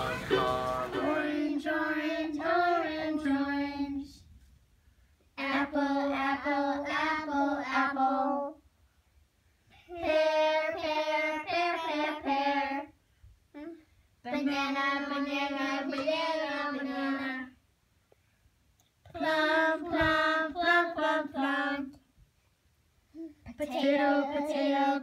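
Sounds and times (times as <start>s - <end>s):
child singing: 0.0s - 4.2s, 5.4s - 8.6s, 9.8s - 13.0s, 13.6s - 17.6s, 19.0s - 22.0s, 23.2s - 25.0s.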